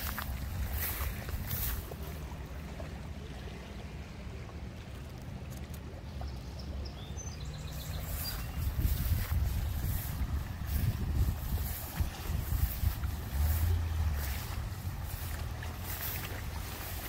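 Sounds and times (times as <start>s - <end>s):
wind buffeting microphone: 0.0s - 2.4s, 7.4s - 17.0s.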